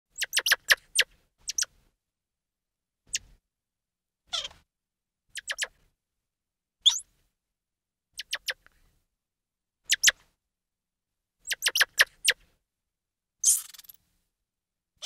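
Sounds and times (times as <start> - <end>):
monkey squeaks: 0.2 - 1.7, 5.4 - 5.7, 6.8 - 7.0, 8.2 - 8.6, 9.9 - 10.1, 11.4 - 12.4, 13.4 - 14.0.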